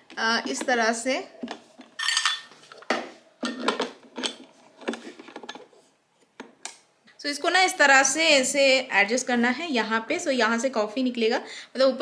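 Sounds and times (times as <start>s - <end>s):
portafilter clinking against metal: 2.0s - 2.5s.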